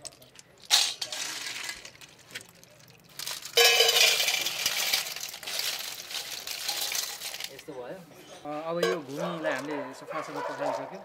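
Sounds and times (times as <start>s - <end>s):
snail shells rattling into metal bowl: 0.0s - 7.6s.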